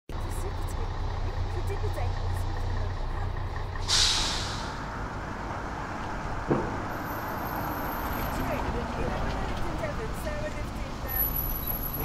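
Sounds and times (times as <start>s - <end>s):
heavy vehicle idling: 0.1s - 12.0s
air brakes hissing: 3.8s - 4.9s.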